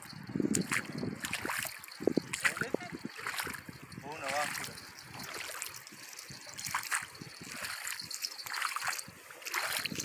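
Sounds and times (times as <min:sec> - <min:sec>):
rubber boots stepping through water: 0:00.5 - 0:10.0
fish flapping in shallow water: 0:04.4 - 0:10.0.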